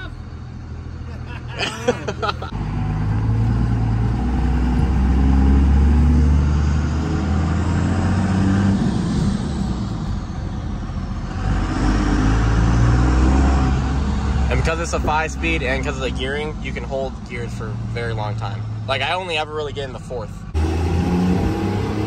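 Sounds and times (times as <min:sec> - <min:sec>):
diesel truck engine accelerating: 0:00.0 - 0:22.0.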